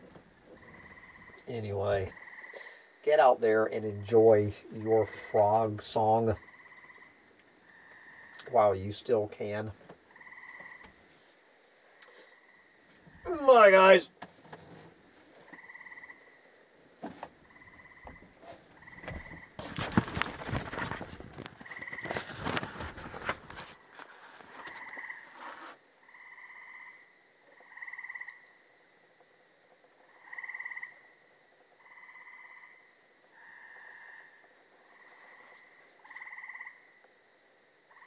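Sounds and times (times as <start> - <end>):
frogs calling: 0.4 - 11.0, 15.4 - 22.6, 24.6 - 25.4, 26.0 - 38.0
loud rustling and knocking: 19.0 - 24.7.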